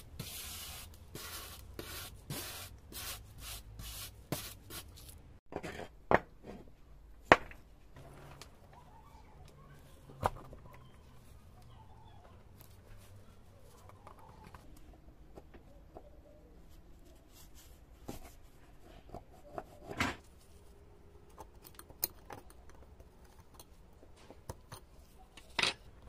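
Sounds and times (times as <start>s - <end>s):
wire brush strokes: 0.0s - 5.2s.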